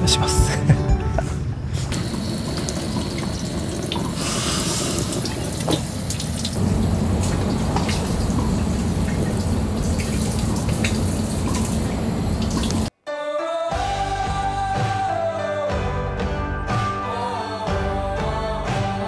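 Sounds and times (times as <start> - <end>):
water splashing from a tap: 2.0 - 12.9.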